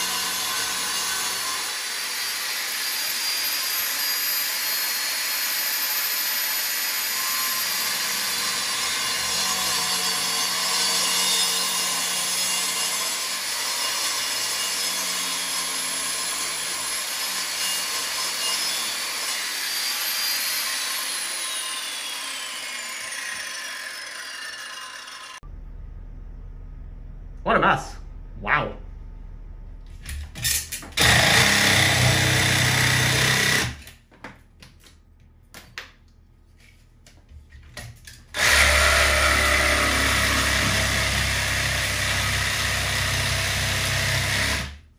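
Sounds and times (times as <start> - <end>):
angle grinder cutting tile: 0.0 - 25.4, 30.4 - 34.0, 38.2 - 44.8.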